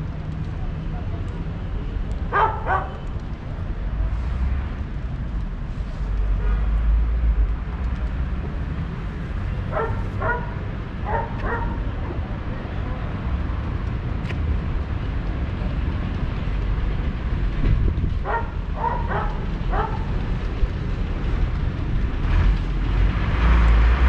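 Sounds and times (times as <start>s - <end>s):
low rumble of street traffic: 0.0s - 24.0s
dog barking: 2.3s - 3.0s, 9.7s - 12.2s, 18.2s - 20.1s.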